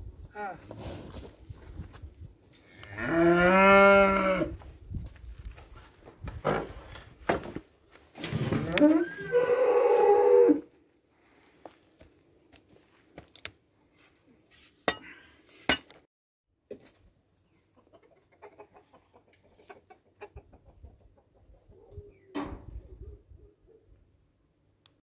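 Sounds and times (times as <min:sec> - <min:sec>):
chickens clucking: 0:17.4 - 0:23.8.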